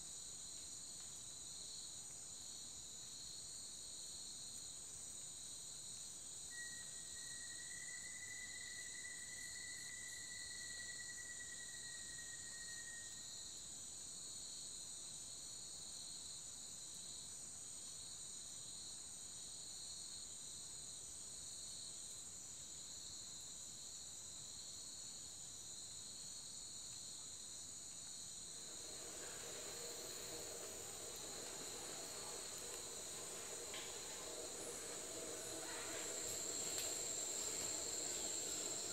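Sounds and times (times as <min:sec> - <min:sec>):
faint hiss: 0:00.0 - 0:38.9
lower insect chorus: 0:00.0 - 0:38.9
high-pitched insect chorus: 0:00.1 - 0:19.0, 0:27.8 - 0:38.9
thin whistled note: 0:06.5 - 0:13.3, 0:28.6 - 0:38.9.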